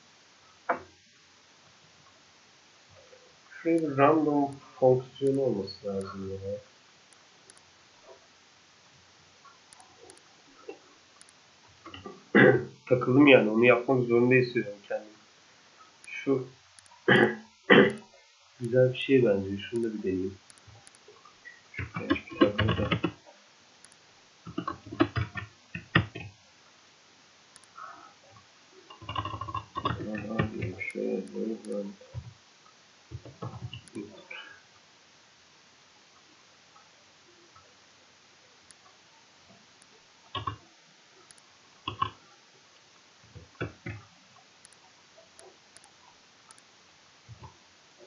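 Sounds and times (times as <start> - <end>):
keyboard typing: 21.8 - 23.2, 23.8 - 26.3, 28.9 - 32.3, 40.3 - 40.6, 41.3 - 42.2.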